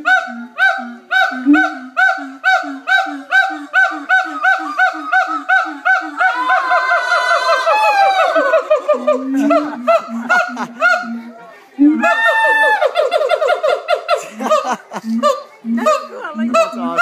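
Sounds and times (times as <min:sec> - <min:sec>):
faster monkey calls: 0:00.0 - 0:11.3
monkeys calling rhythmically: 0:00.0 - 0:17.0.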